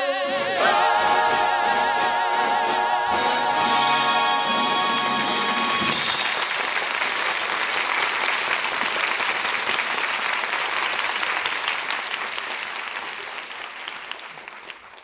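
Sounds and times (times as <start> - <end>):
audience applauding: 3.6 - 15.0.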